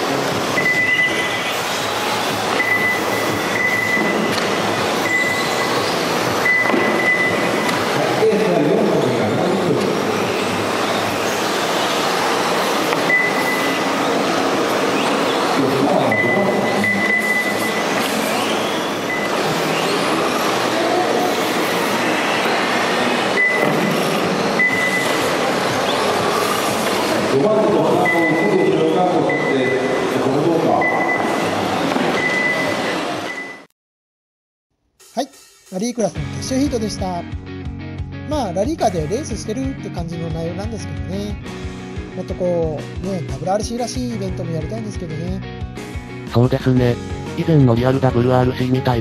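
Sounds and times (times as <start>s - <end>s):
steady rush of noise: 0.0s - 33.6s
steady high tone: 10.1s - 23.7s.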